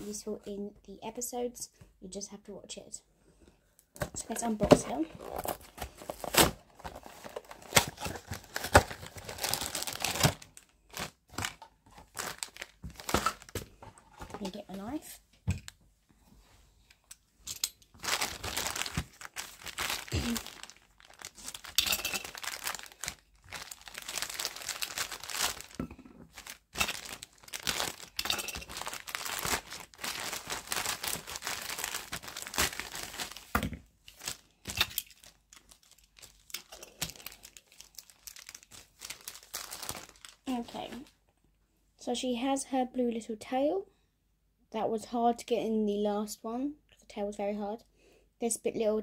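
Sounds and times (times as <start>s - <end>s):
plastic bag crinkling: 4.2s - 15.0s, 17.7s - 41.1s.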